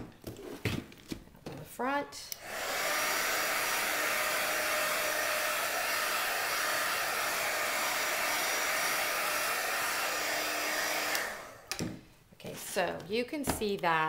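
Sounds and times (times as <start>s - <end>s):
heat gun blowing: 2.3s - 11.8s.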